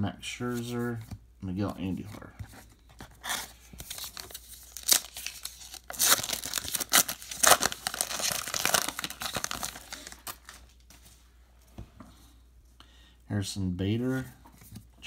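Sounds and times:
card pack wrapper tearing: 3.2 - 10.6.

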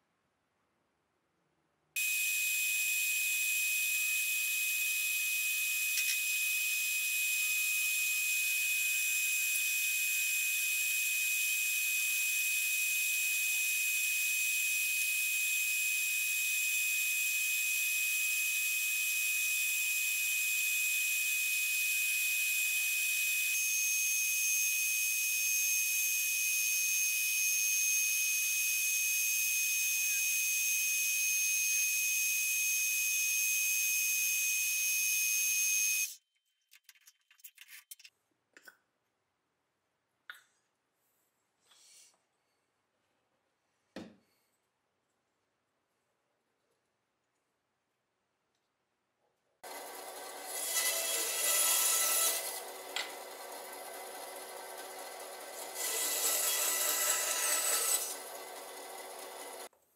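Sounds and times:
lathe whining: 49.7 - 59.7.

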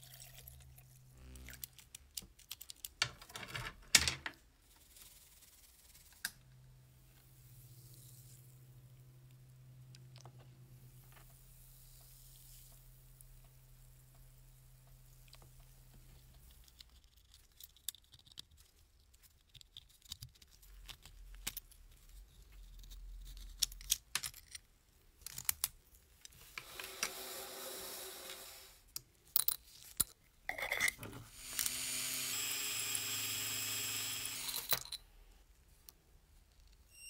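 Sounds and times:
metal toy parts clinking: 34.5 - 35.0.

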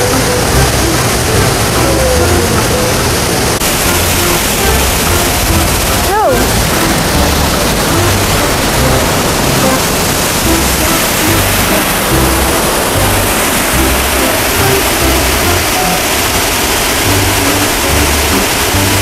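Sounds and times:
rushing river water: 0.0 - 19.0
background music with bass notes: 3.6 - 16.0.

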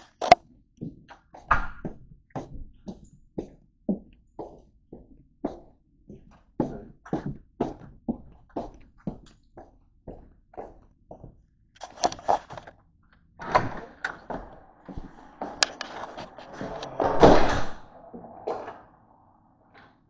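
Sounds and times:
rushing scrape: 13.4 - 20.0
flip-flop footsteps: 14.1 - 17.0.

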